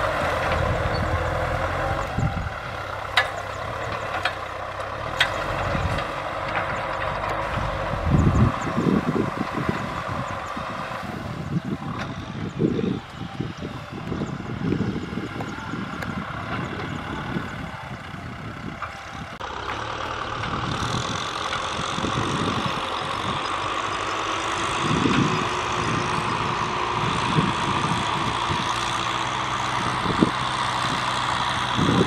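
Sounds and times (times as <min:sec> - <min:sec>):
distant tractor engine: 0:00.0 - 0:32.0
tractor engine humming: 0:00.0 - 0:32.0
wind on microphone: 0:07.4 - 0:19.4, 0:20.6 - 0:23.5, 0:24.6 - 0:32.0.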